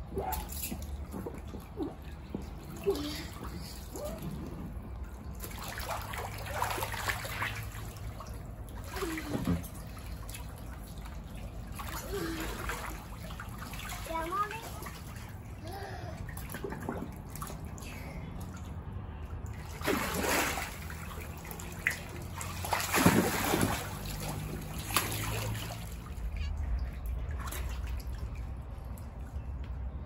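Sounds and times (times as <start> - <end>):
water sloshing in paddling pool: 0.0 - 30.0
loud splashes: 5.3 - 10.6, 11.6 - 15.6, 19.5 - 26.2.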